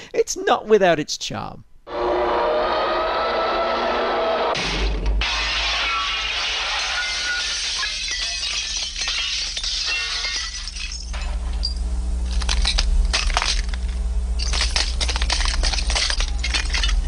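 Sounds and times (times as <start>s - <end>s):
cartoon window glass shattering: 4.6s - 11.4s, 14.4s - 17.0s
steady low hum: 4.6s - 17.0s
glass shards clinking: 6.6s - 17.0s.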